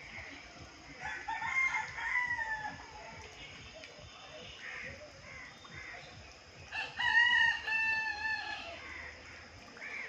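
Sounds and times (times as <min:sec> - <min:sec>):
rooster crowing: 0:06.7 - 0:08.8.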